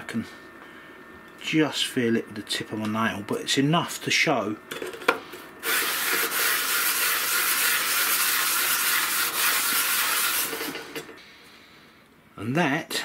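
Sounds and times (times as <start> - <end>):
sanding rasp on emery cloth: 5.7 - 10.7.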